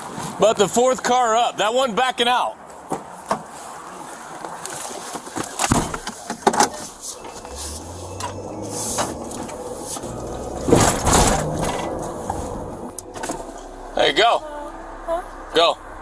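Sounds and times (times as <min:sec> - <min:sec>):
low hum: 0:07.2 - 0:16.0
knocks and thumps: 0:08.2 - 0:13.5.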